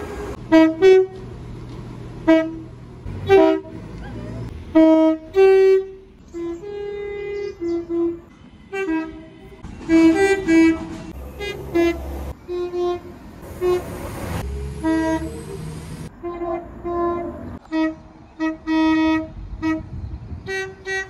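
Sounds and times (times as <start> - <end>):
two-tone train horn blasts: 0.0 - 1.3, 2.2 - 3.8, 4.7 - 14.0, 14.8 - 15.4, 16.1 - 21.0.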